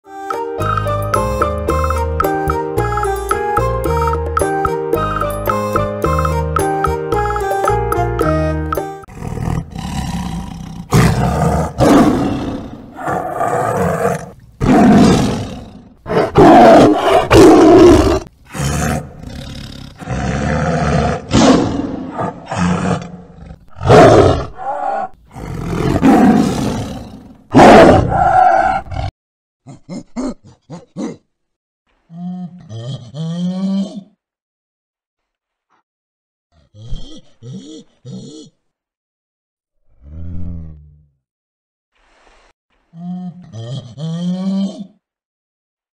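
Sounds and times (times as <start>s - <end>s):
tiger roaring: 9.1s - 29.1s.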